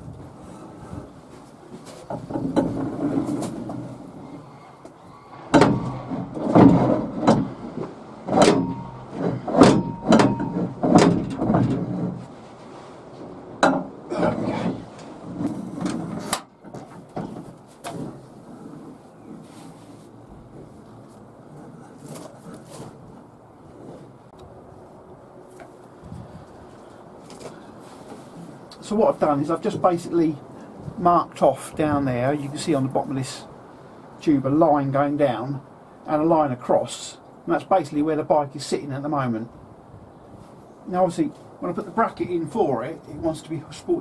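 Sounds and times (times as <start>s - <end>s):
metal bar scraping truck bed: 1.9s - 19.8s.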